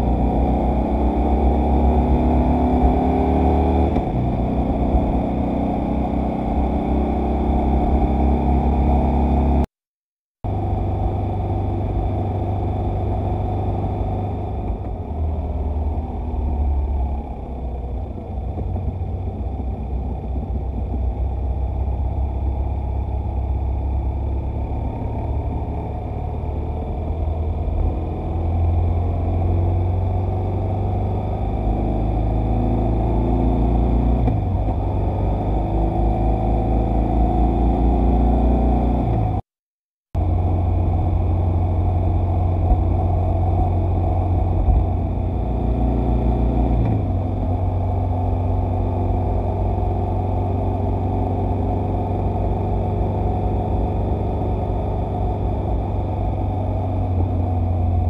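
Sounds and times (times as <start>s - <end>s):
motorcycle engine: 40.2s - 58.0s
wind rumble: 40.2s - 58.0s.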